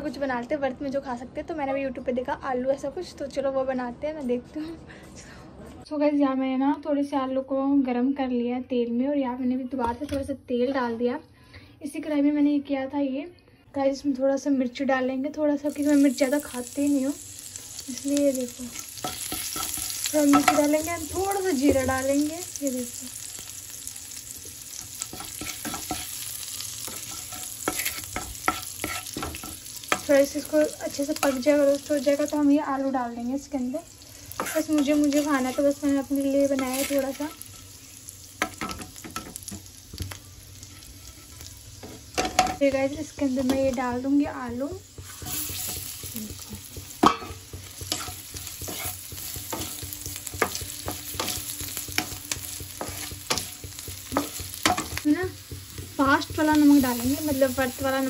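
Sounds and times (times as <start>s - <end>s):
chillies sizzling in hot oil: 14.1s - 58.0s
spatula scraping and clicking: 24.8s - 26.2s, 26.8s - 30.1s, 34.4s - 35.7s, 36.5s - 37.6s, 47.5s - 56.4s.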